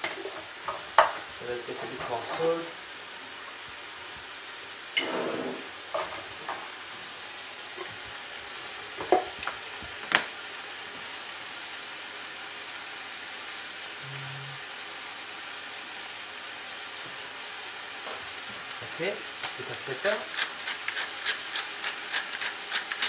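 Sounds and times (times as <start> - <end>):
vegetables sizzling in oil: 0.0 - 23.0
utensils clicking and knocking: 19.4 - 23.0.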